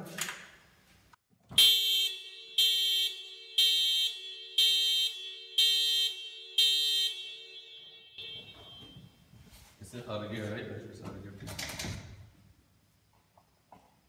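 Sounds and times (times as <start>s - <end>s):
car alarm pulses: 1.5s - 9.3s
steady low alarm tone: 1.6s - 9.4s.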